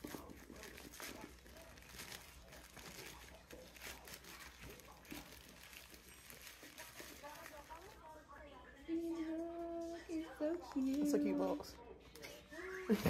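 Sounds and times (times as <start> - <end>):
plastic bag crinkling: 0.0 - 8.3.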